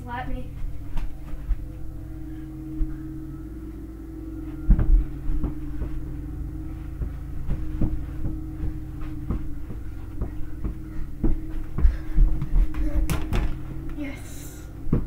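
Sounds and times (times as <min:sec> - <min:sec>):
steady low hum: 0:00.0 - 0:15.0
feet thumping on floor: 0:02.7 - 0:15.0
ball bouncing: 0:04.7 - 0:14.1.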